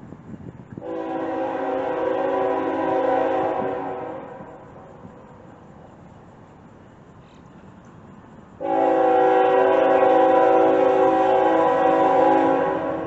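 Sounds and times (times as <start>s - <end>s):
low background noise: 0.0s - 13.0s
locomotive air horn chord: 0.8s - 4.9s, 8.6s - 13.0s.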